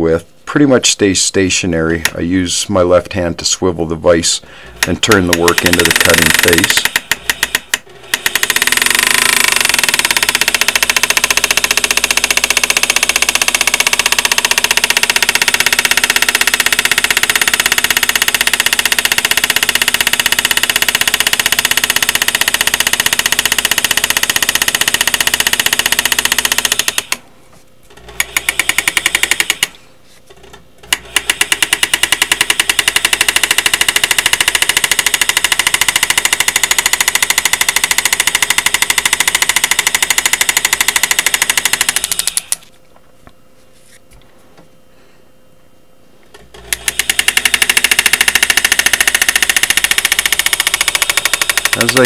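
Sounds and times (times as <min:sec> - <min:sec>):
engraver hammering rapidly: 0:04.7 - 0:27.2, 0:28.2 - 0:29.8, 0:30.9 - 0:42.6, 0:46.7 - 0:52.0.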